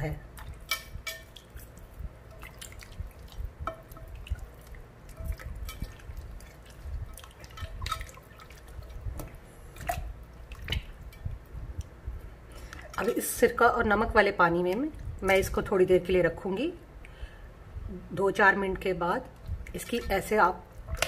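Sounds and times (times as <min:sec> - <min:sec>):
wet squelching and splashing: 0:00.3 - 0:11.2.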